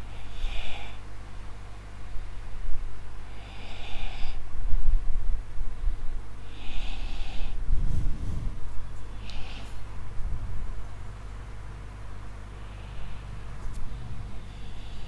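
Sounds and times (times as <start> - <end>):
steady low hum: 0.0 - 15.0
man sniffing inhale: 3.3 - 4.5, 6.0 - 8.2, 9.1 - 9.9, 12.5 - 13.5, 14.3 - 15.0
exhaled air hitting microphone: 7.1 - 10.8.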